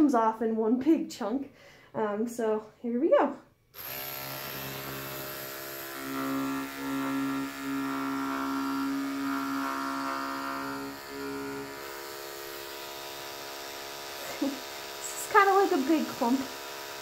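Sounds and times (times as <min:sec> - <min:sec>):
electric clippers humming: 0:03.7 - 0:17.0
clippers cutting through fur: 0:03.8 - 0:17.0.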